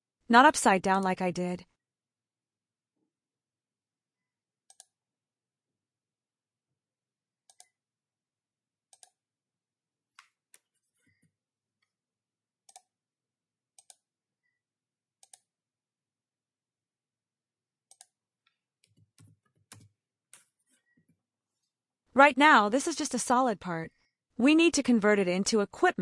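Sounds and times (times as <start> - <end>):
computer mouse clicks: 4.7 - 5.0, 7.5 - 7.8, 8.9 - 9.2, 12.7 - 12.9, 13.8 - 14.0, 15.2 - 15.5, 17.9 - 18.2.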